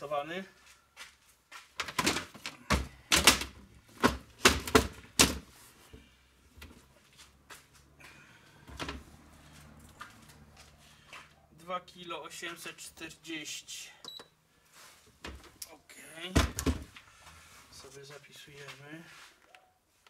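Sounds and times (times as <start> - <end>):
plastic crate clacking: 1.8 - 5.5, 16.4 - 16.9.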